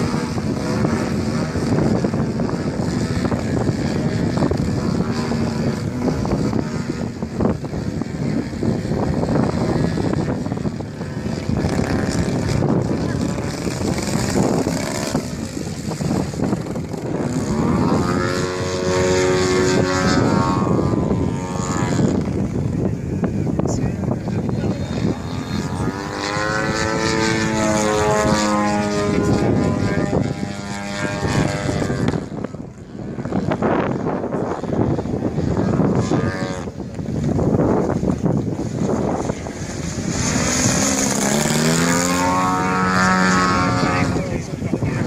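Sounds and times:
model plane engine running: 0.0s - 45.0s
wind buffeting microphone: 0.0s - 45.0s.

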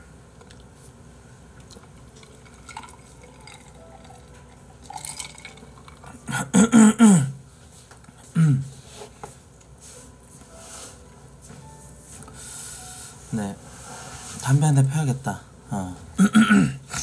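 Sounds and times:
man drinking from a glass: 1.6s - 4.2s.

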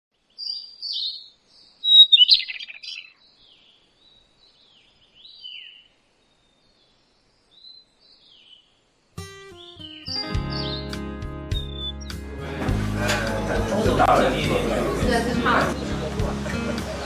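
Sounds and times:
birds chirping: 0.1s - 12.4s
whistled bird notes gliding downward: 0.4s - 3.8s, 9.2s - 12.2s.

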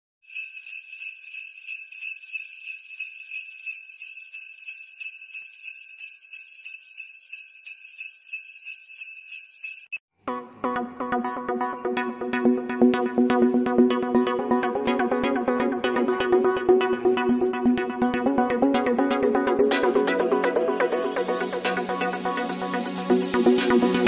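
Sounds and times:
jingle bells shaken: 0.2s - 10.0s, 17.1s - 24.0s
music: 10.2s - 24.0s.

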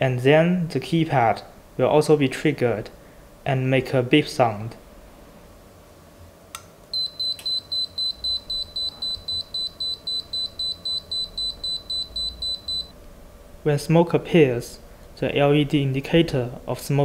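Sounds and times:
alarm keypad beeping rapidly: 7.0s - 12.9s.

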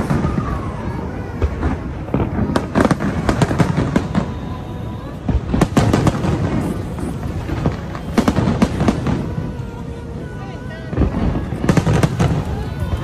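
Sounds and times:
firework shells bursting and crackling: 0.0s - 13.0s.

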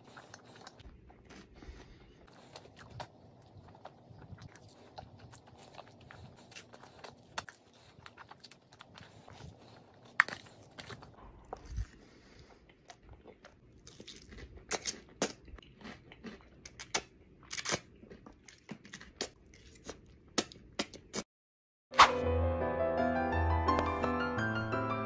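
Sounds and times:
person chewing noodles: 0.0s - 21.2s.

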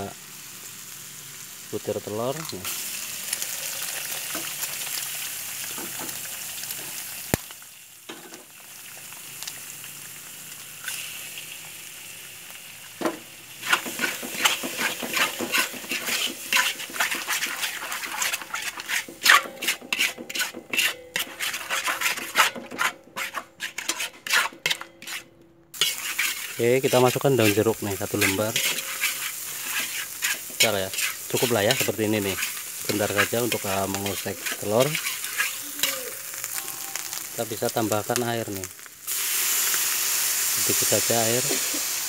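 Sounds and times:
eggs sizzling in oil: 0.0s - 42.0s
metal spatula scraping wok: 13.0s - 38.0s.

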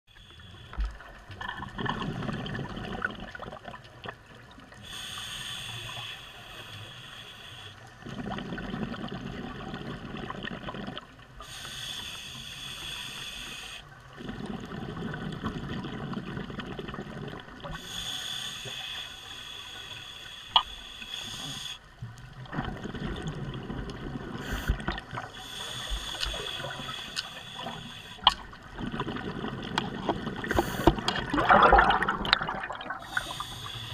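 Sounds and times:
diver breathing through regulator: 4.8s - 8.4s, 11.4s - 15.5s, 17.7s - 21.9s, 24.3s - 31.9s, 32.5s - 33.9s.

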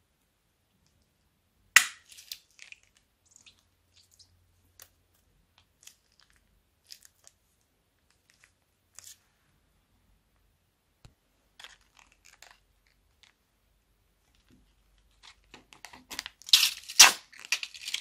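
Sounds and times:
plastic bag crinkling: 11.6s - 13.4s.

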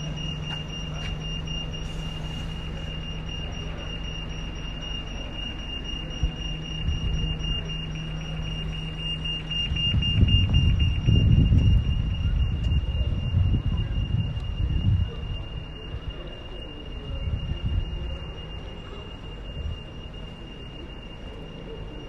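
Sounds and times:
high-pitched alarm tone: 0.0s - 22.0s
outdoor background noise: 0.0s - 22.0s
low rumble: 5.8s - 18.6s.

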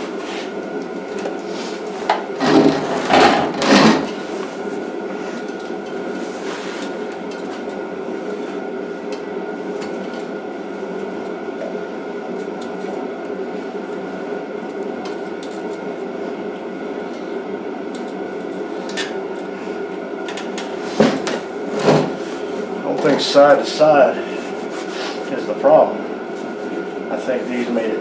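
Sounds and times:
machine hum with high whine: 0.0s - 28.0s.

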